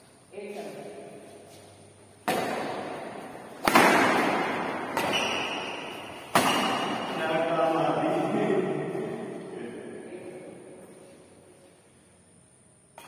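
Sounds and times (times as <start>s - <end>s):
racket striking shuttlecock: 2.2s - 7.2s.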